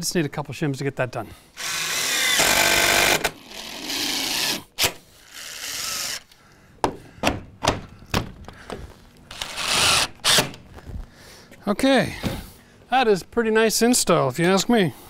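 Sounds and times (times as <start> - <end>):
cordless driver driving screws: 1.6 - 6.3, 9.3 - 10.6.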